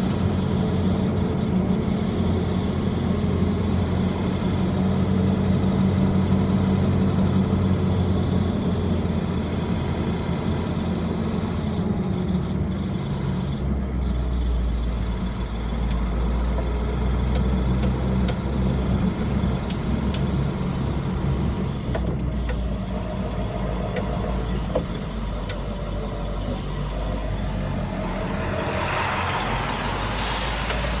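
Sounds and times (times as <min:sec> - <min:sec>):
vehicle engine hum and road noise: 0:00.0 - 0:31.0
hiss: 0:30.0 - 0:31.0.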